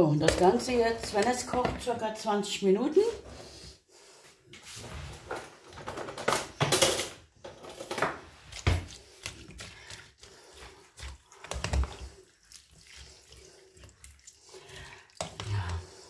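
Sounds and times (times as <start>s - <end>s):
wet vegetables rustling: 0.0s - 2.0s, 7.9s - 16.0s.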